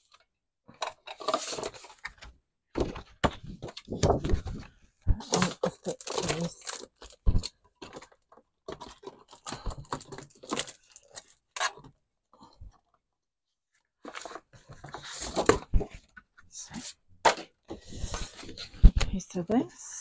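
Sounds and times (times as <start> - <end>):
card sheets rustling: 1.1 - 8.1.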